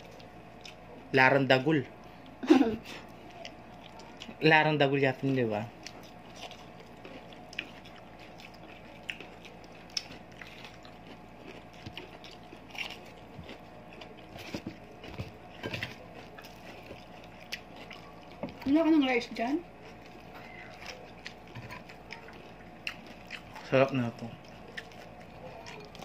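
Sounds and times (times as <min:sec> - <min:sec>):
chewing and biting: 0:00.0 - 0:01.1, 0:03.0 - 0:04.4, 0:05.2 - 0:26.0.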